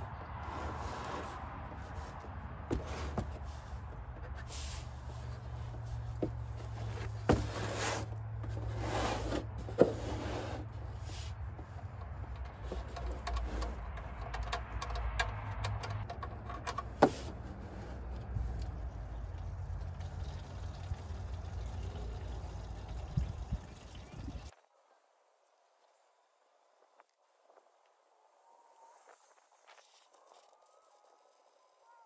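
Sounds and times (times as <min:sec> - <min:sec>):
light handling noise: 0:00.1 - 0:19.0
oil pouring out: 0:19.2 - 0:24.1.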